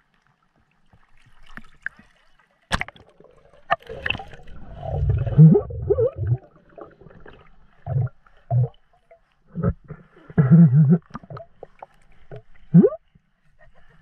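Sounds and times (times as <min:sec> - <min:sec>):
underwater gurgling and swishing: 0:00.0 - 0:14.0.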